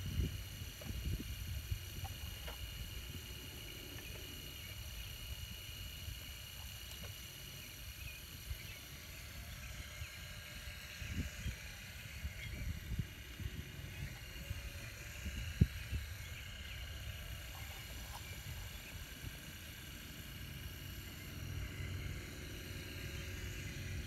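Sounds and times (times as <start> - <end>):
high motor whine: 0.0 - 24.0.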